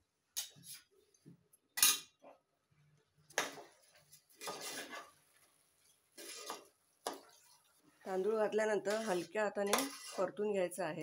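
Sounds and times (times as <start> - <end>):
spoon scraping through rice: 4.0 - 5.2, 6.1 - 10.4.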